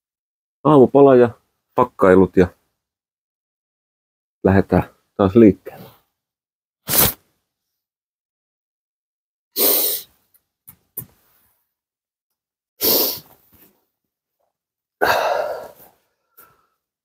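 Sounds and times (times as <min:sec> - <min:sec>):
man's breath puffs: 0:15.0 - 0:16.9.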